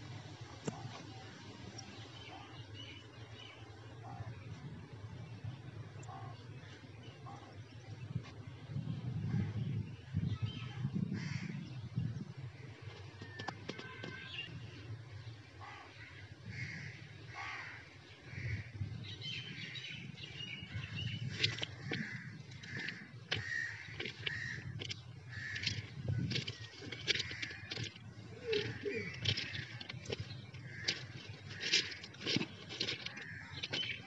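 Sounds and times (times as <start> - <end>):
crows cawing: 11.2 - 11.6, 15.6 - 18.7, 21.8 - 30.0, 30.6 - 32.1, 33.1 - 33.9.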